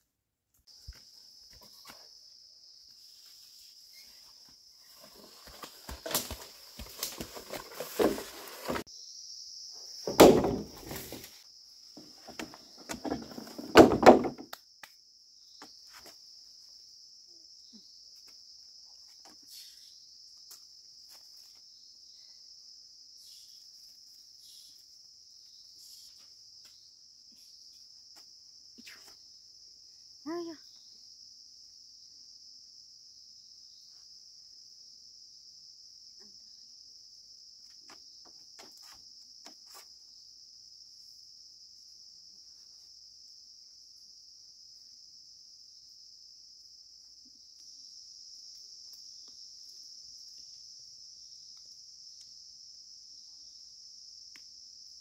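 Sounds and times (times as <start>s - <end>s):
crickets chirring: 0.7s - 55.0s
handling rustling and knocking: 5.0s - 8.8s, 10.1s - 11.4s, 12.0s - 14.5s
loud thumps: 10.1s - 11.2s, 13.1s - 14.5s.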